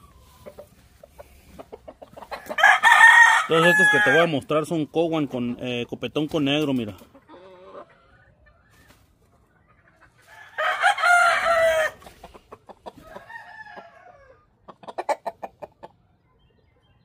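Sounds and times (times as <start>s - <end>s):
rooster crowing: 2.5s - 4.4s, 10.2s - 12.0s, 13.0s - 14.4s.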